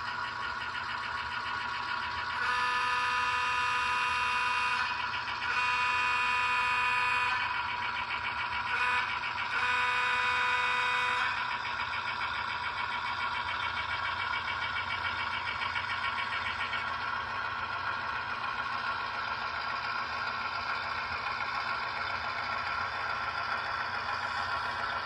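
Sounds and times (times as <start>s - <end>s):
model locomotive horn: 2.2s - 11.8s.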